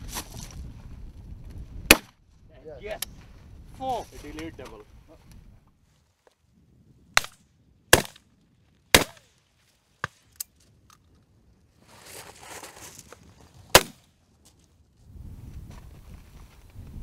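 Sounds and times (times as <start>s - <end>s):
shotgun shots: 1.9s - 2.1s, 7.2s - 8.2s, 8.9s - 9.3s, 13.7s - 14.0s
distant shotgun shots: 7.2s - 8.2s, 8.9s - 9.3s, 13.7s - 14.0s.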